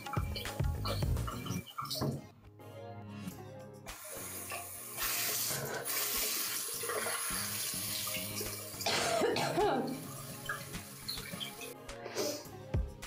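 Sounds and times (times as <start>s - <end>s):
tap water running into sink: 3.9s - 9.0s, 9.7s - 11.7s.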